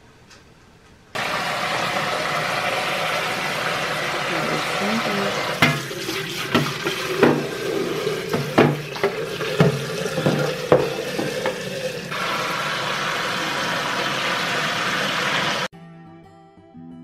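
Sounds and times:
sharp knocks and clatters: 8.3s - 11.6s.

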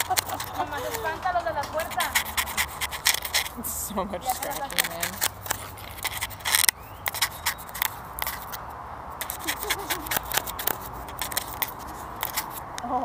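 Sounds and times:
paws scratching microphone: 0.0s - 8.6s, 9.2s - 12.8s.

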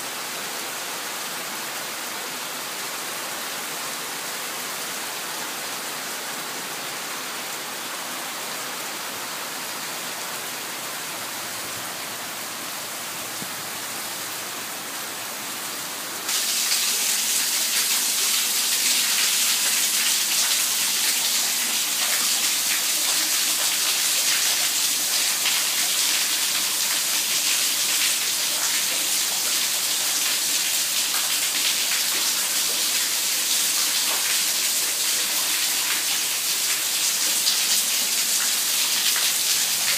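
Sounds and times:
heavy rain falling: 16.3s - 39.9s.

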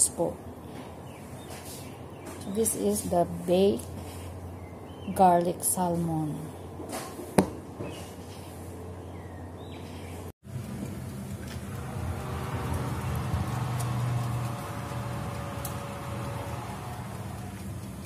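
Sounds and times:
oven humming with faint whine: 7.8s - 18.0s.

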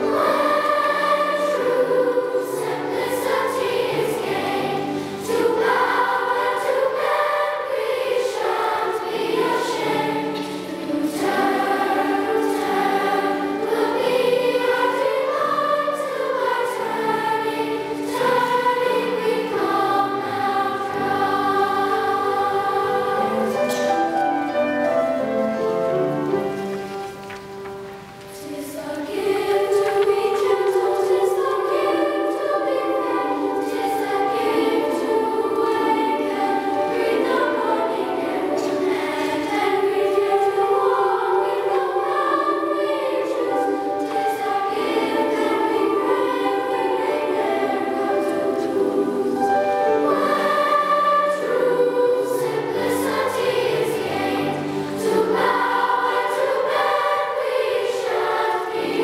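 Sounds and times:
children's choir singing: 0.0s - 59.0s.

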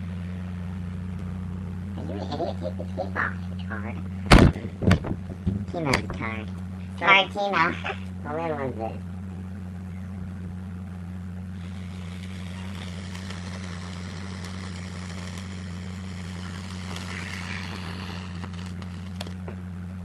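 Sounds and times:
steady low hum: 0.0s - 20.0s
firework crackles: 11.6s - 19.4s
firework hissing: 11.6s - 19.4s.

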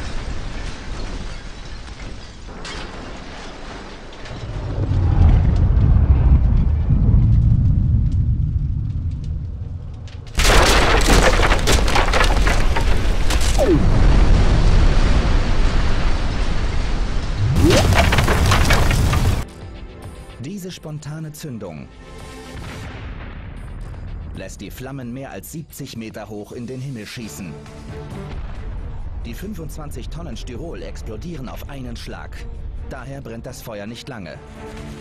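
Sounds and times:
crackling fireball: 0.0s - 19.5s, 22.5s - 24.6s, 28.2s - 31.8s
deep rumble: 4.1s - 19.4s
loud explosion blast: 10.4s - 19.4s.

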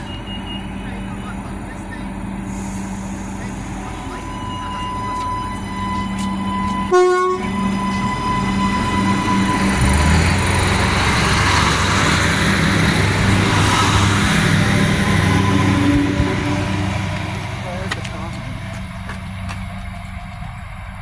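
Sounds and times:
diesel engines rumbling: 0.0s - 21.0s
train wheel noise: 0.0s - 21.0s
train horn toot: 4.2s - 9.9s.

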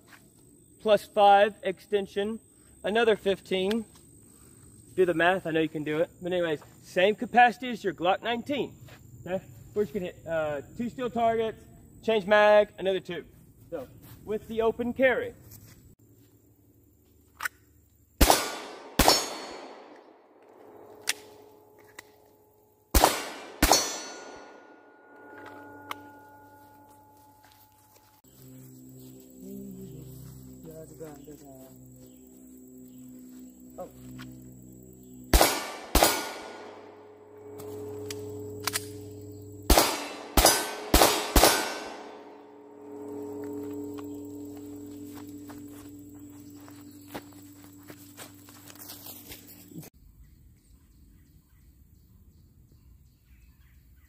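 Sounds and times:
pistol shots: 18.2s - 20.0s, 22.9s - 24.6s, 35.3s - 37.0s, 39.7s - 42.3s
steel targets ringing: 18.3s - 19.9s, 23.0s - 28.2s, 35.3s - 48.7s
magazine change clicks: 38.1s - 39.0s.

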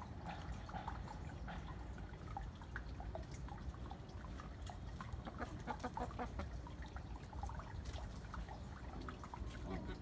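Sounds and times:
chickens clucking: 5.1s - 6.6s.

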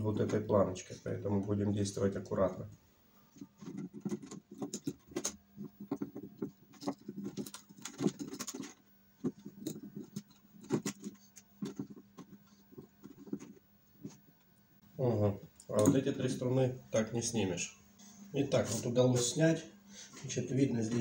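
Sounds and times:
faint steady hum: 0.0s - 21.0s
guitar strings scratching and clicking: 3.4s - 14.2s.

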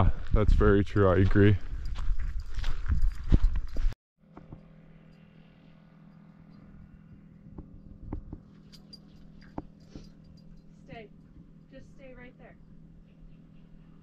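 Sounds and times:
scuffing footsteps: 1.1s - 4.0s
faint low hum: 4.3s - 14.0s.

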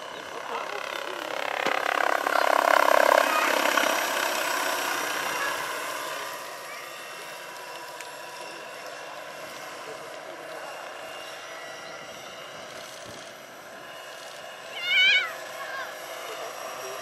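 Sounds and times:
model helicopter flying past: 0.0s - 17.0s.

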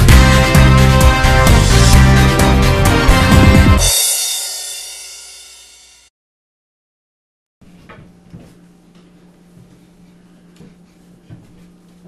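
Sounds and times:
intro music: 0.0s - 6.1s.

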